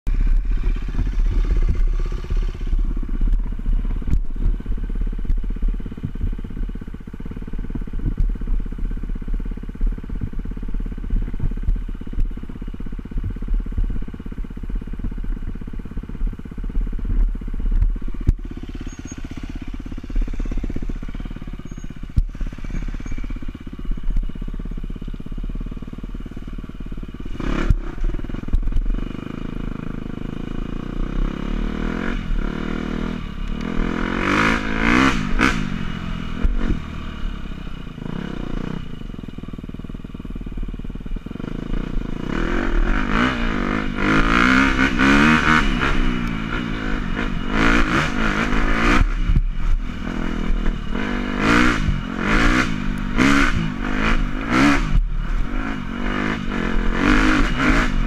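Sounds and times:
dirt bike engine revving: 0.1s - 4.5s, 17.4s - 24.8s, 27.2s - 37.4s, 41.4s - 58.0s
wind rumble on microphone: 7.7s - 18.5s.

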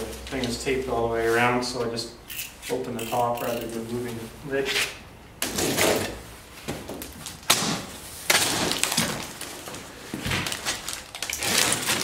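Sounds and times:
cardboard flaps tearing: 7.3s - 9.6s, 10.3s - 12.0s
packing tape ripping: 7.4s - 9.6s, 10.3s - 12.0s.

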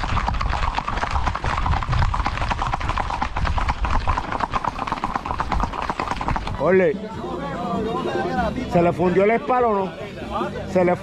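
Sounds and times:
horse hooves clip-clopping: 0.0s - 6.9s.

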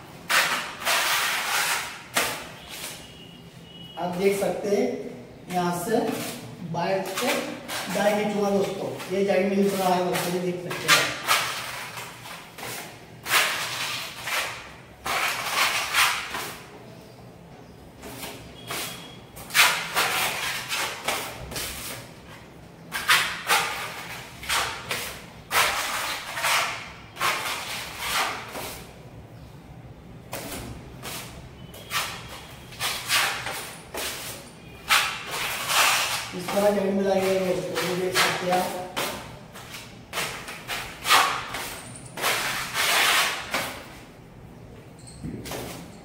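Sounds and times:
putty blade scraping wall: 31.1s - 43.9s.

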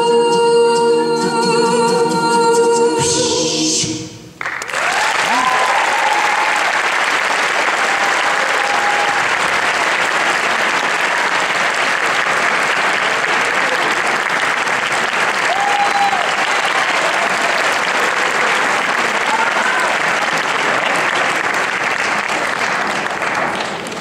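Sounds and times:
audience applauding: 4.4s - 24.0s
voices cheering: 4.7s - 9.9s, 15.3s - 21.2s.

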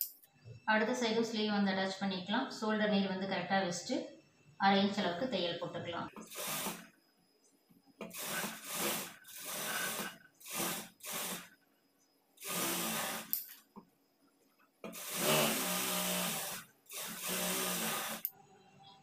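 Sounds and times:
sewing machine running: 6.2s - 6.9s, 8.0s - 11.5s, 12.4s - 13.4s, 14.9s - 18.3s.

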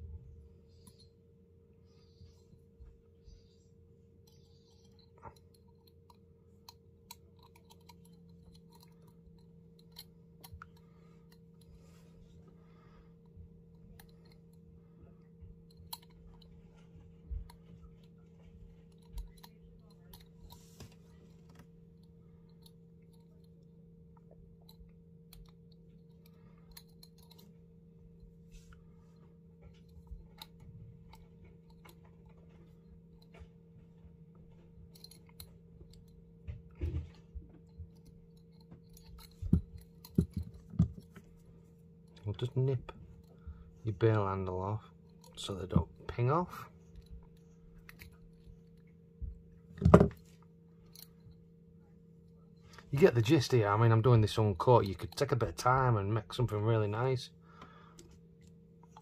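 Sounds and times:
low hum: 0.0s - 59.0s
wire tapping glass jar: 4.2s - 11.7s, 24.2s - 27.6s.

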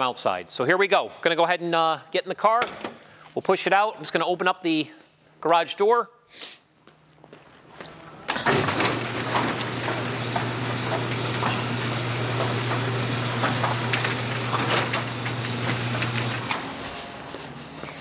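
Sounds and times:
garage door motor hum: 8.1s - 18.0s
door clicks and rattles: 8.3s - 16.9s.

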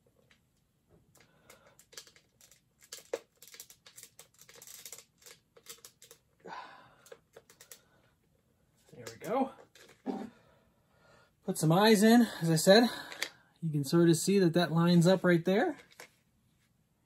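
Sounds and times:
plastic parts clicking together: 1.1s - 6.3s, 7.0s - 7.8s.

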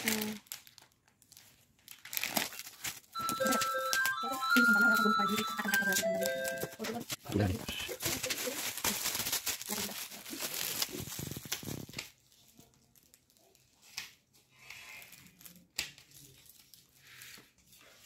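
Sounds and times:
foil gift wrap crinkling and tearing: 0.0s - 18.0s.

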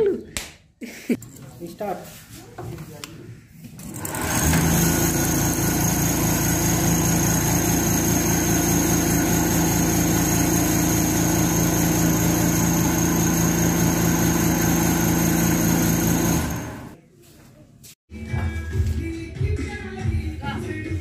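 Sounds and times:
coil-winding machine humming: 4.0s - 17.0s.

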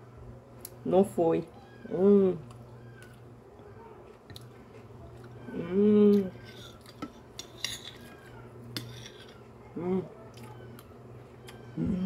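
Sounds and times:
person humming: 5.5s - 6.4s, 11.7s - 12.0s
spoon scraping glass plates: 6.3s - 9.5s.

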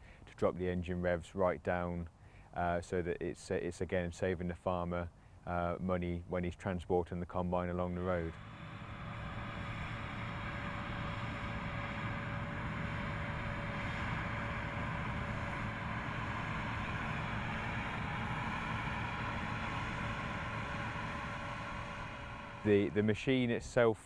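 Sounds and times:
thin steady whine: 0.0s - 24.0s
combine harvester drone: 7.6s - 24.0s.

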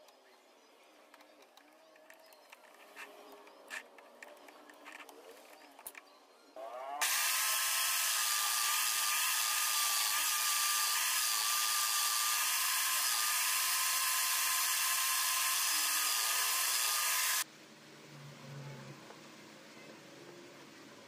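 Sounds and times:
power drill high whine: 6.6s - 17.4s.

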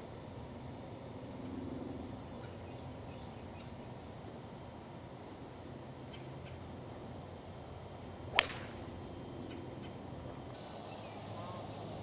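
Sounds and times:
golf club striking ball: 8.3s - 8.9s.

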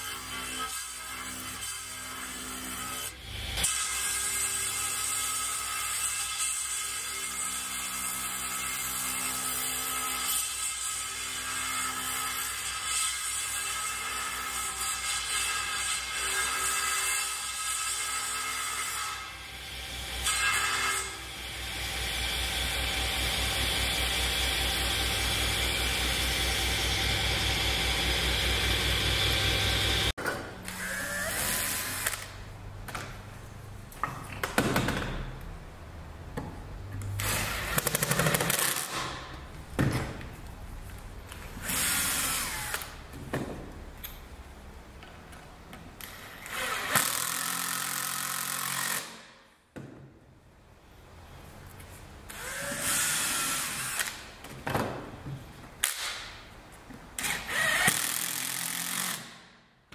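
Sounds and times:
table saw running: 21.7s - 30.1s.

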